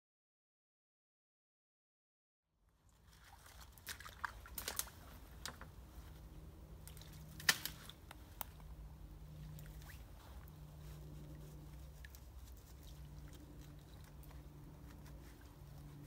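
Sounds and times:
steady low hum: 2.7 - 16.0
sieve splashing in stream: 2.9 - 5.8.

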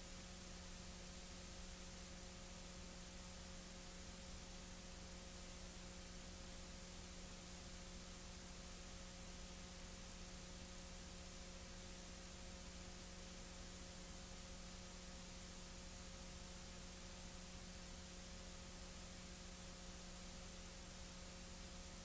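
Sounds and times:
faint steady hiss: 0.0 - 22.0
low electrical hum: 0.0 - 22.0.

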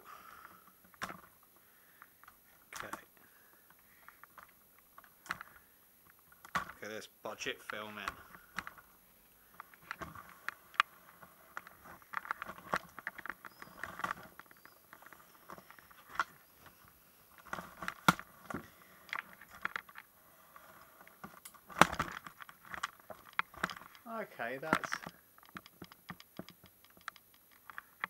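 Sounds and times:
light clicks taps and rustles: 9.5 - 28.0.

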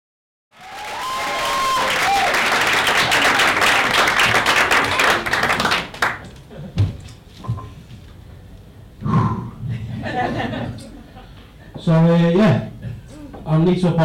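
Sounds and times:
audience applauding: 0.6 - 6.5
microphone handling thumps: 6.7 - 8.0.

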